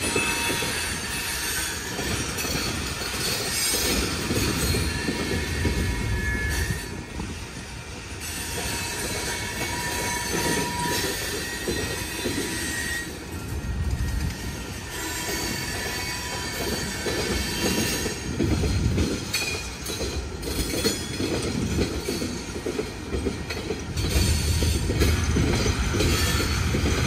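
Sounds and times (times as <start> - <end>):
high wheel squeals: 0.0 - 7.2, 8.2 - 18.3
freight cars rumbling on rails: 0.0 - 27.0.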